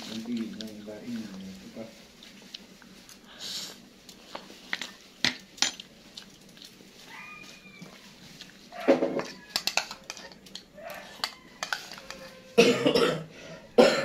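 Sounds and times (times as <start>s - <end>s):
spoon clinking on ceramic bowl: 9.2s - 12.2s.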